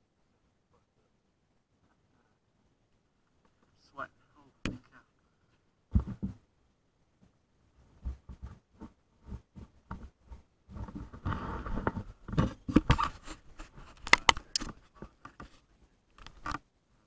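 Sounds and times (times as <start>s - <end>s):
sharp knocks: 5.9s - 6.4s
camera rustling against clothing: 7.8s - 16.6s.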